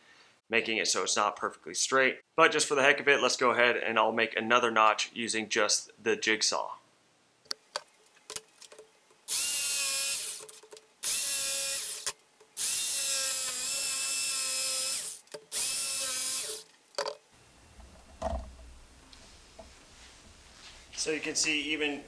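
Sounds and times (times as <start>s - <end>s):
jigsaw cutting vinyl plank: 11.1s - 16.6s.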